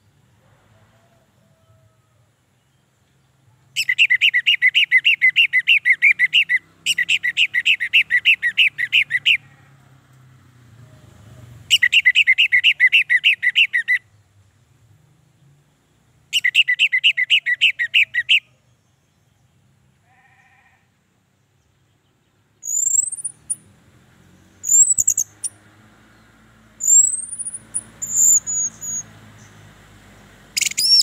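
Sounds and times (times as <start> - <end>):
thrush whistling song: 3.8 - 9.4, 11.7 - 14.1, 16.3 - 18.6, 22.6 - 23.7, 24.5 - 25.6, 26.8 - 29.6, 30.5 - 31.0.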